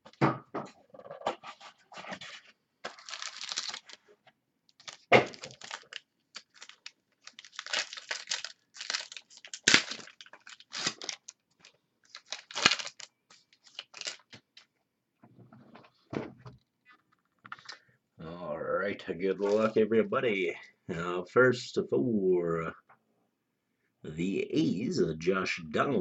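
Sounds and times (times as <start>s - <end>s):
cardboard and cards rustling: 1.1s - 4.2s, 4.8s - 14.7s, 19.4s - 19.8s.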